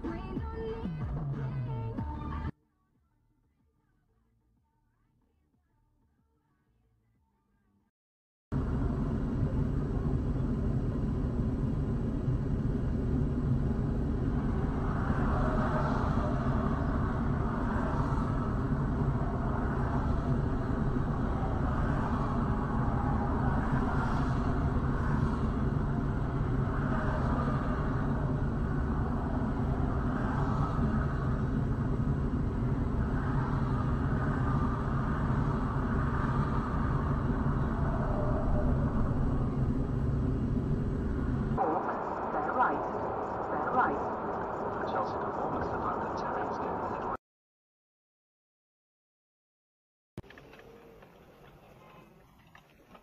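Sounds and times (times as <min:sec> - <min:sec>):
highway traffic rumble: 0:08.5 - 0:47.2, 0:50.2 - 0:53.0
vehicles passing: 0:08.6 - 0:47.1.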